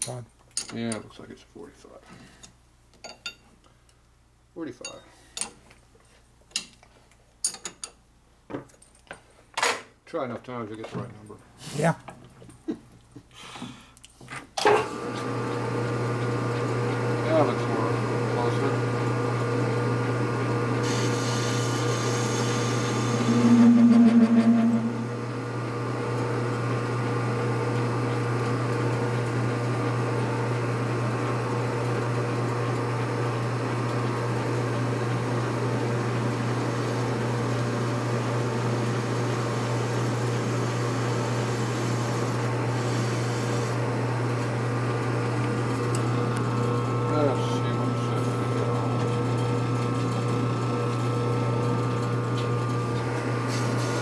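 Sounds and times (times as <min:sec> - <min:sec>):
lathe motor hum: 0:20.9 - 0:25.4
single-pitched tone: 0:23.0 - 0:25.4.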